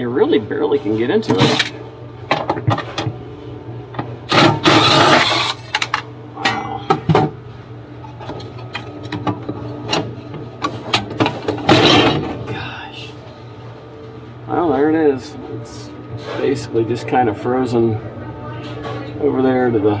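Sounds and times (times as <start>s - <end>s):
steady low hum: 0.0s - 20.0s
power driver whirring: 4.3s - 6.0s.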